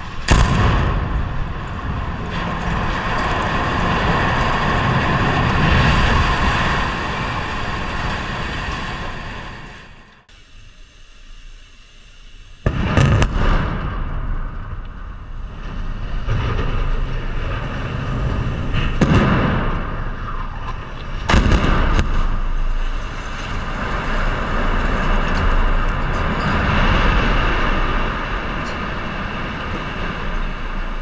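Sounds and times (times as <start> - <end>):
explosive blast: 0.0 - 3.4, 12.6 - 24.8
low rumble of falling debris: 0.0 - 10.2, 12.6 - 31.0.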